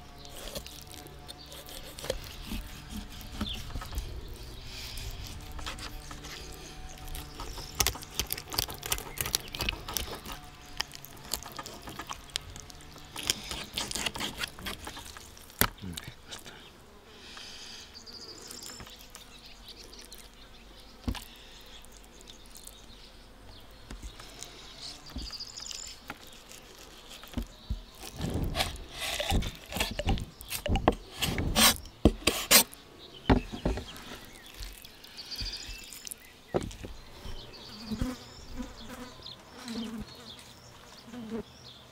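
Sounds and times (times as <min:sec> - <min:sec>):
faint insects buzzing: 0:00.0 - 0:41.9
knife slicing fish: 0:01.5 - 0:04.0, 0:13.2 - 0:15.2.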